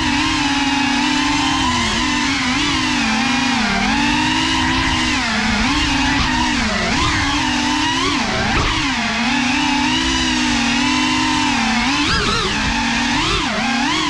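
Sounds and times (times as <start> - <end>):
quadcopter motors whining: 0.0 - 14.0.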